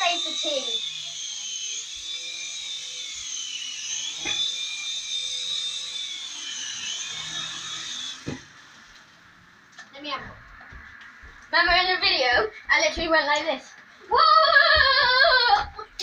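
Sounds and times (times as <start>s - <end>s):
toy helicopter motor whining: 0.0s - 8.9s, 14.1s - 16.0s.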